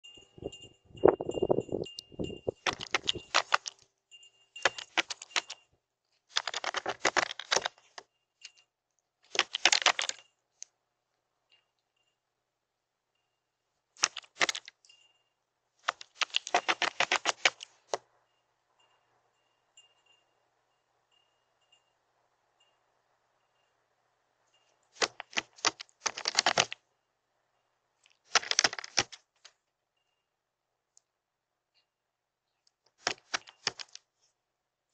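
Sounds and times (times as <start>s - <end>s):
bird bill tapping on concrete: 1.1s - 3.7s, 15.9s - 17.6s.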